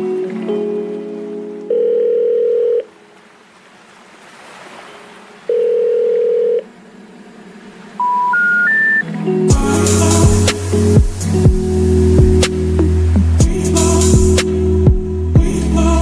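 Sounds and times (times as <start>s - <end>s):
telephone ringing tone: 1.7s - 2.9s, 5.5s - 6.6s, 8.0s - 9.0s
rising beeps: 8.0s - 9.1s.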